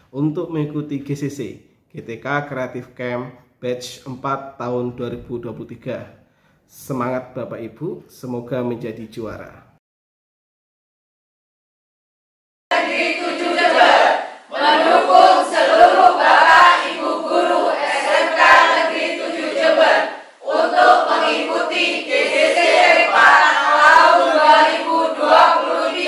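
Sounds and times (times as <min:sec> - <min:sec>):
group singing and chanting: 0:12.7 - 0:26.0.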